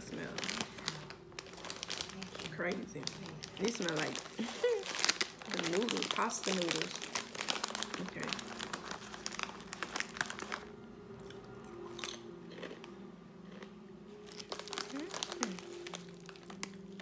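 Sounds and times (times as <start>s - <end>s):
foil chip bag crinkling: 0.0s - 10.8s, 14.2s - 17.0s
hand rustling among chips: 0.4s - 10.7s.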